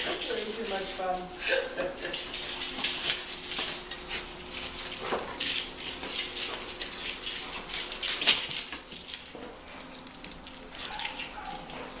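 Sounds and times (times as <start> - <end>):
dog claws clicking and scuffling: 0.0 - 12.0
small dog noises: 10.6 - 12.0.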